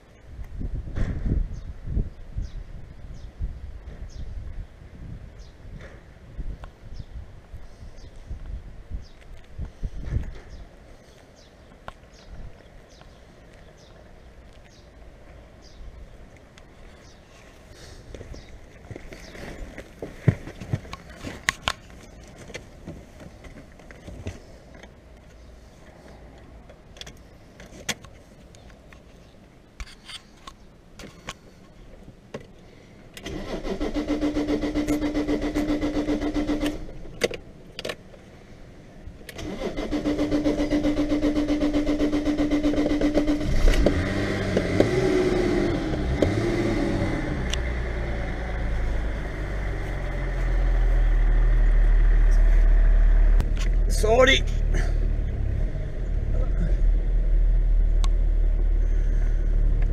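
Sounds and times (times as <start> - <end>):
car starter motor cranking: 33.2 - 37.0, 39.3 - 44.9.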